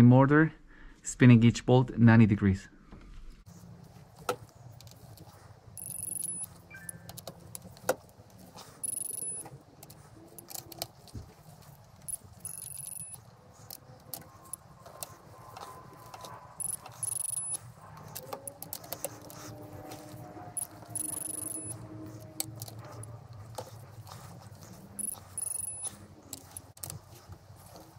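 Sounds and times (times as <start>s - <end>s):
short high beeps: 5.8s - 7.0s, 8.8s - 9.5s, 12.4s - 13.2s, 16.6s - 17.6s, 21.0s - 21.7s
metallic ratchet clicks: 5.8s - 7.2s, 8.8s - 9.5s, 12.1s - 13.2s, 16.6s - 17.6s, 20.6s - 21.8s, 25.0s - 26.8s.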